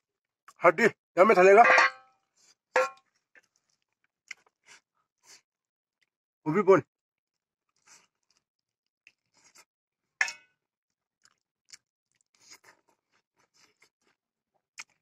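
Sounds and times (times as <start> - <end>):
wet chewing and smacking: 2.4 - 6.2, 7.3 - 9.7, 10.9 - 15.0.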